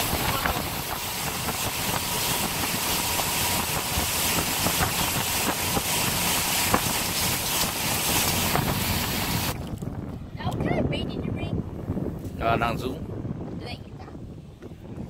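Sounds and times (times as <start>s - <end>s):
lake water slapping: 0.0s - 9.6s
wind buffeting microphone: 0.0s - 15.0s.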